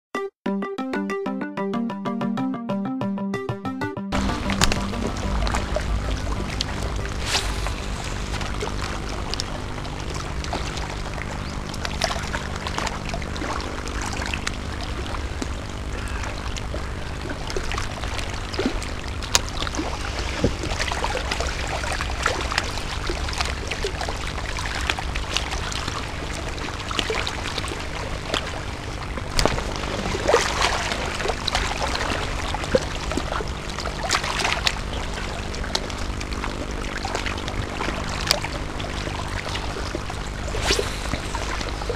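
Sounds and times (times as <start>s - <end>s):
low rumble: 4.1s - 27.0s
crackling: 4.2s - 23.6s.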